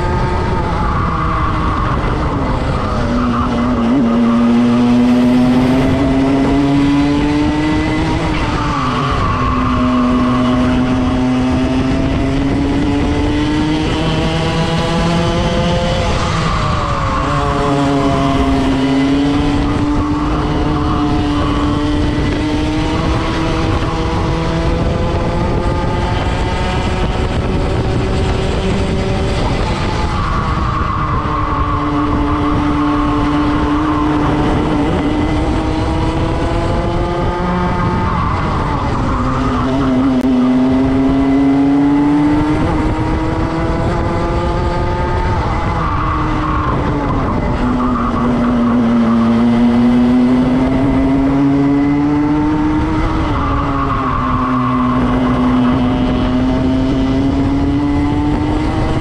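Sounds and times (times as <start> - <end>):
kart engine at high revs: 0.0 - 59.0.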